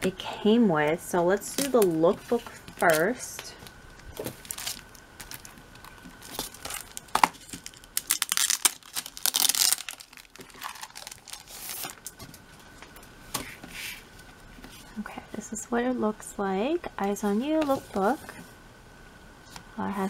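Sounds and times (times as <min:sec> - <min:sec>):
plastic wrap crinkling: 0:01.3 - 0:13.0
plastic wrap snap: 0:04.1 - 0:12.3.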